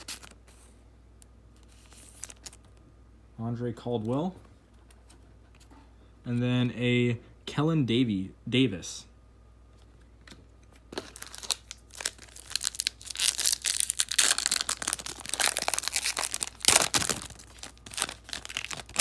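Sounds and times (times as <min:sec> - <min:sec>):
wrapper being torn and crinkled: 0:01.8 - 0:02.6, 0:11.0 - 0:19.0.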